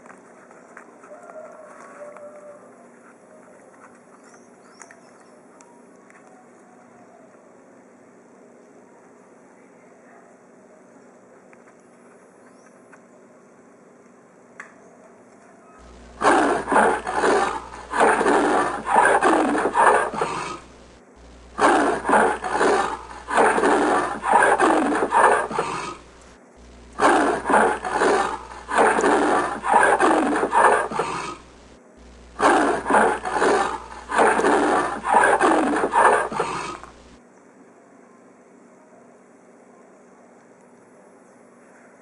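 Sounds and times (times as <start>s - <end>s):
leopard rasping grunts: 15.8s - 26.2s, 26.9s - 31.6s, 32.4s - 37.0s.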